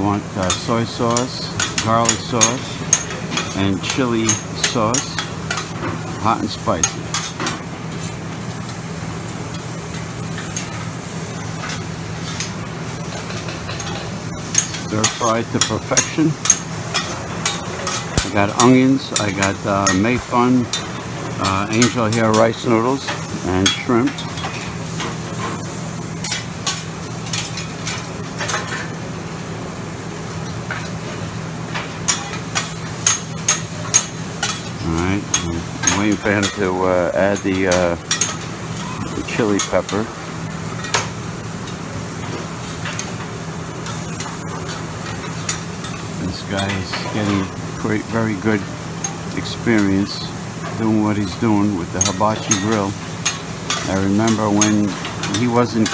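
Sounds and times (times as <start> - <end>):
food sizzling on a griddle: 0.0 - 55.9.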